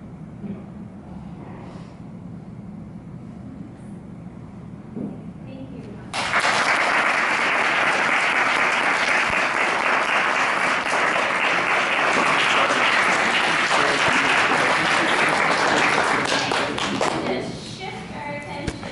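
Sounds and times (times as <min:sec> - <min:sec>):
audience applauding: 0:06.1 - 0:17.2.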